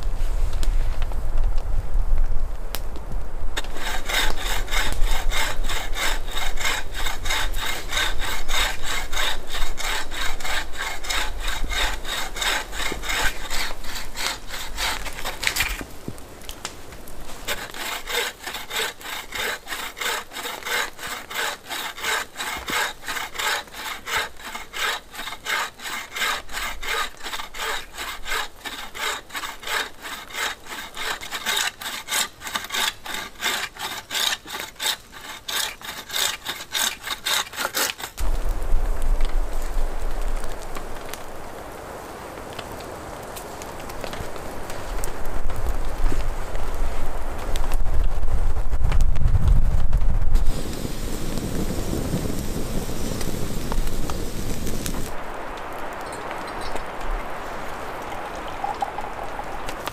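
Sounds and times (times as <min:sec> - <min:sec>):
bow saw cutting a branch: 0:03.6 - 0:15.9, 0:17.3 - 0:38.3.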